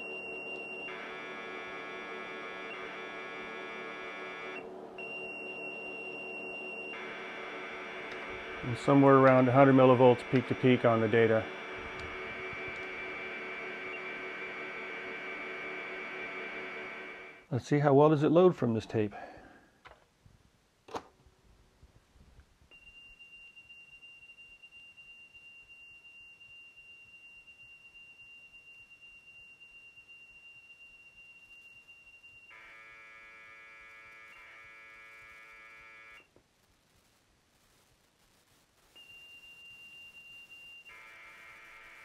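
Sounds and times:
buzzy tape data: 0.0s - 17.5s, 31.5s - 42.0s
high steady tape tone: 0.0s - 17.6s, 26.3s - 42.0s.

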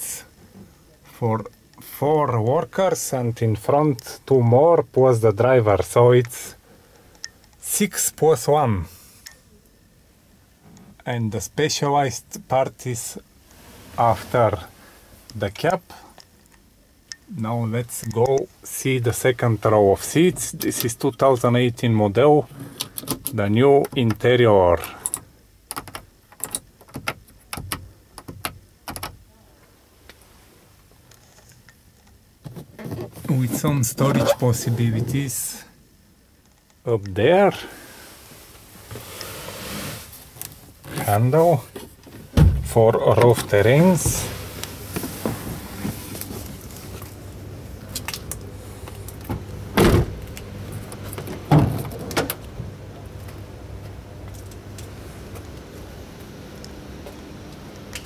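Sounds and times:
steady low hum: 0.0s - 26.4s, 27.8s - 58.0s.

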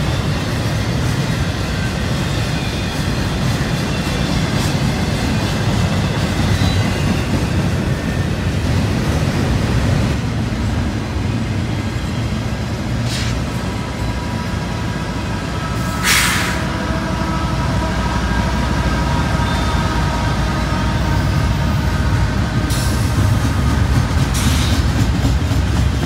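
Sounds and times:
freight train rumbling on rails: 0.0s - 26.0s
locomotive whining tones: 9.8s - 26.0s
sharp hiss: 13.0s - 13.6s, 16.0s - 16.7s.

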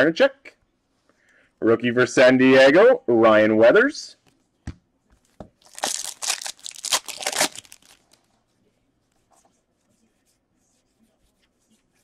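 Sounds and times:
foil wrapper tearing and crinkling: 5.6s - 8.2s.

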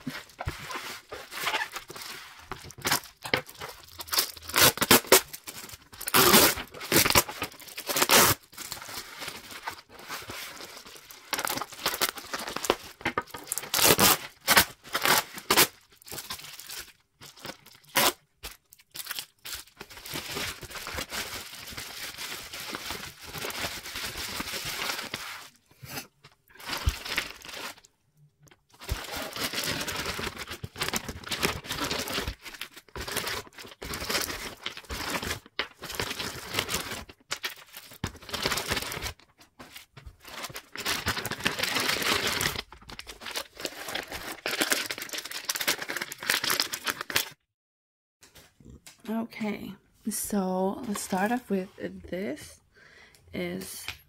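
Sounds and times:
bubble wrap and plastic crinkling: 0.0s - 27.9s, 28.5s - 47.4s
packing tape ripping: 2.7s - 8.5s, 11.3s - 16.3s, 17.7s - 19.3s.

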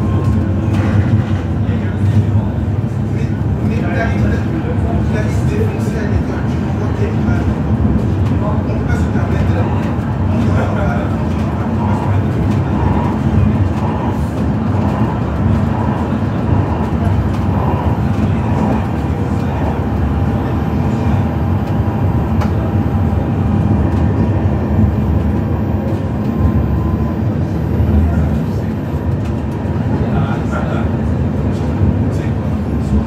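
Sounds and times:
tram wheels rumbling on rail: 0.0s - 33.0s.

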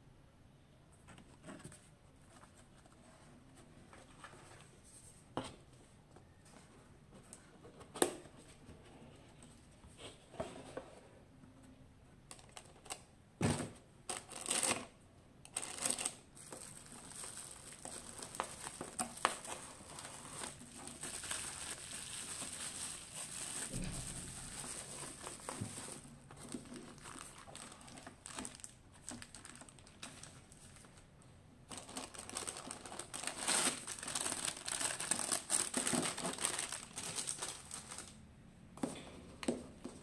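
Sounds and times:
plastic and bubble wrap crinkling: 14.1s - 14.9s, 15.5s - 31.0s, 31.7s - 38.2s.

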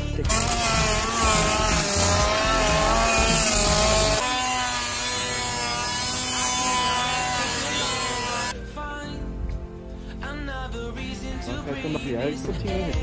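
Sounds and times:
die grinder whine: 0.3s - 8.6s
harsh grinding on steel: 0.3s - 8.6s.

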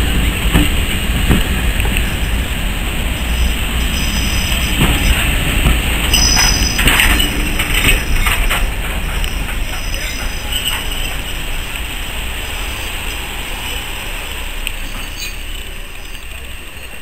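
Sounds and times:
train coaches rumbling past: 0.0s - 17.0s
wheels clicking over rail joints: 0.0s - 17.0s.

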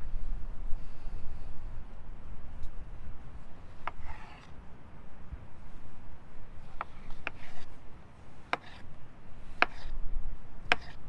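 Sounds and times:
knife chopping on wooden board: 8.5s - 8.8s, 9.6s - 9.9s, 10.7s - 11.0s.

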